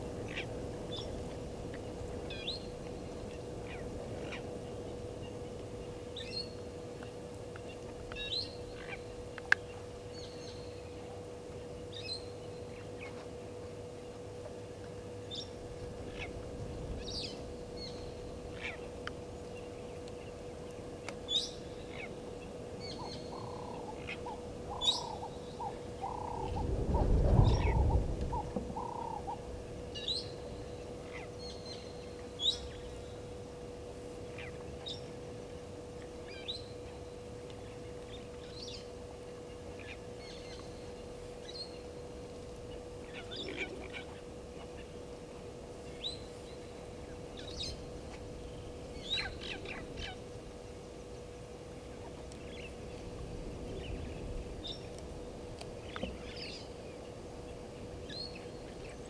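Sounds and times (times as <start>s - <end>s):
steady faint hum: 0.0s - 59.0s
birds chirping and calling: 22.8s - 26.6s, 27.5s - 29.4s.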